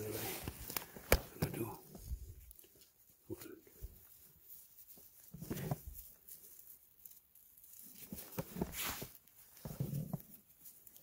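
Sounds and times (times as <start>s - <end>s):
rustling of needle litter: 0.0s - 11.0s.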